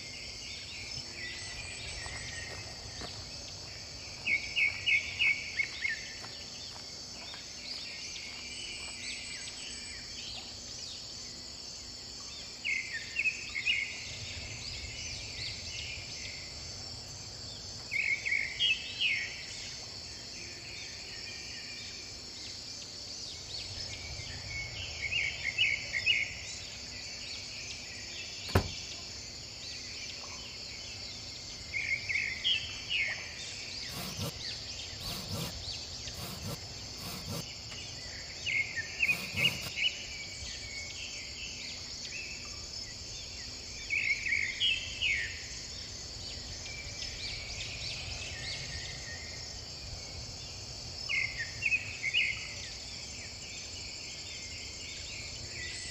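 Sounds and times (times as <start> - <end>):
insects droning: 0.0 - 55.9
soft knocks: 28.5 - 28.8
birds chirping: 33.4 - 40.0
sharp click: 36.2 - 37.4, 39.1 - 39.7.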